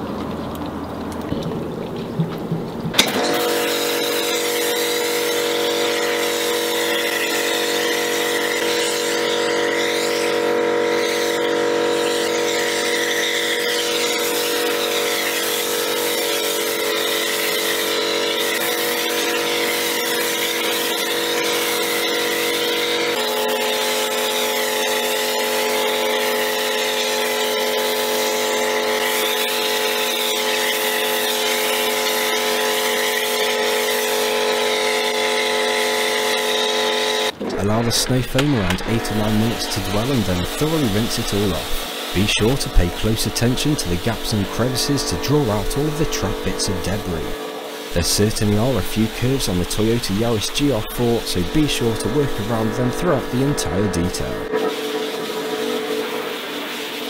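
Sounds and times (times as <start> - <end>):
pressure washer motor hum: 1.0 - 57.0
foam spray hissing: 37.9 - 57.0.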